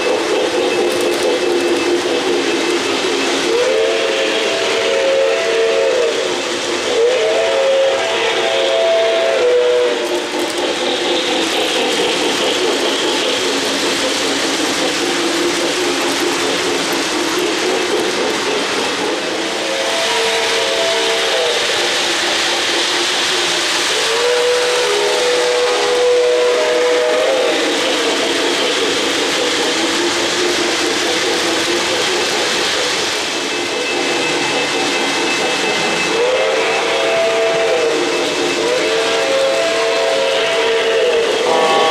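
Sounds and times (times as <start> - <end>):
model train rattling and whirring: 0.0 - 41.9.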